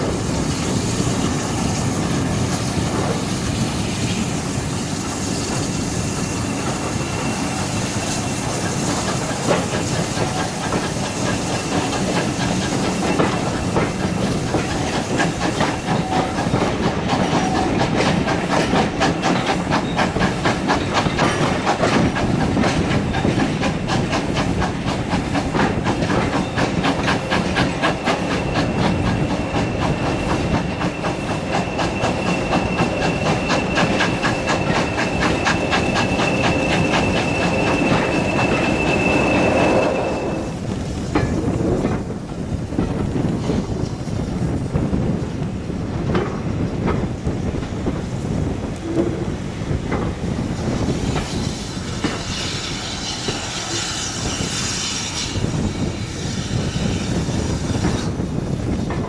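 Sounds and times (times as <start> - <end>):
train rushing hiss: 0.0 - 59.0
wheels clicking over rail joints: 8.4 - 38.8, 40.6 - 52.3, 57.8 - 59.0.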